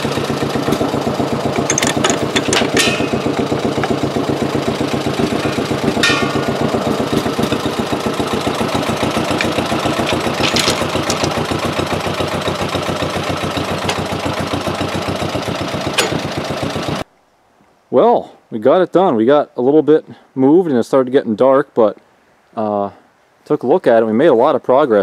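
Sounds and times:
engine idling: 0:00.0 - 0:17.0
sharp metallic clank: 0:01.5 - 0:04.0, 0:05.2 - 0:11.5, 0:15.9 - 0:16.4.

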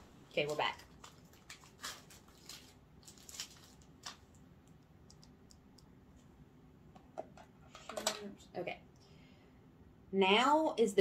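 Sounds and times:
plastic pack crinkling: 0:00.3 - 0:04.4.

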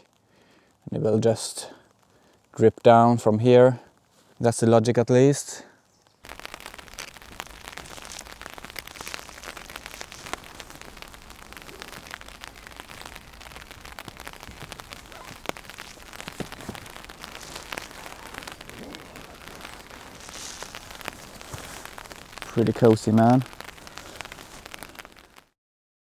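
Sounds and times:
rain pattering on tarp: 0:00.0 - 0:25.6
louder single raindrops: 0:05.6 - 0:25.6.

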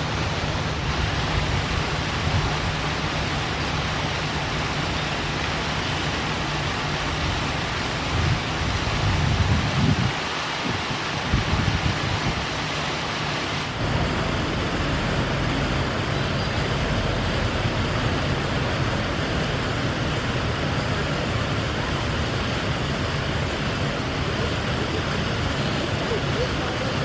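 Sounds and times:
water splashing in fountain basin: 0:00.0 - 0:27.0
low steady rumble: 0:13.7 - 0:27.0.

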